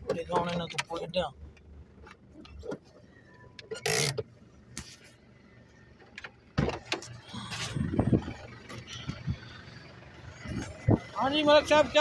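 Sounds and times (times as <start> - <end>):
knocks and clicks in vehicle cabin: 0.0 - 1.0, 6.0 - 7.2.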